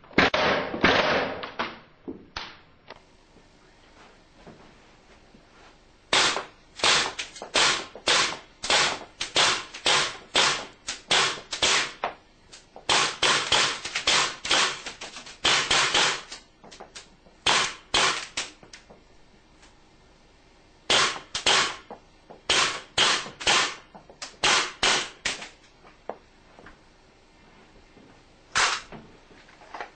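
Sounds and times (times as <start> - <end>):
airgun shots: 0.2 - 1.4, 6.1 - 12.0, 12.9 - 14.8, 17.4 - 18.4, 20.9 - 21.8, 22.5 - 23.8, 28.6 - 28.9.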